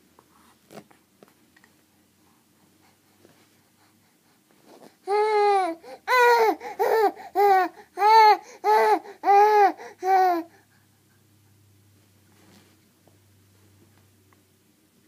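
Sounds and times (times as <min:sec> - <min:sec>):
baby vocalizing: 0:05.0 - 0:10.6.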